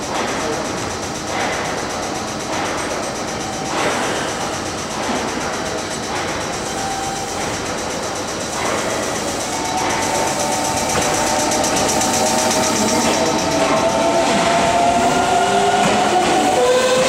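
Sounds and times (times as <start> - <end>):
train wheels rumbling: 0.0 - 17.0
electric train motor whine: 3.4 - 17.0.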